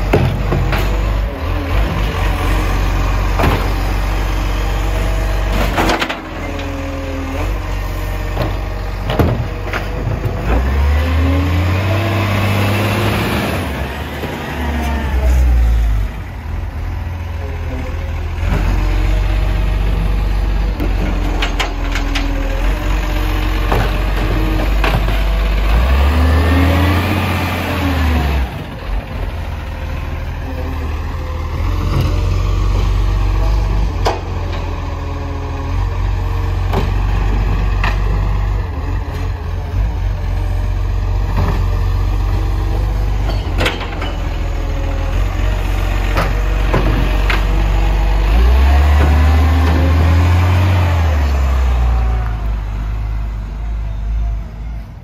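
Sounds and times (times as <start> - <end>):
diesel engine revving: 0.0 - 55.0
sharp knocks and clanks: 8.4 - 10.6.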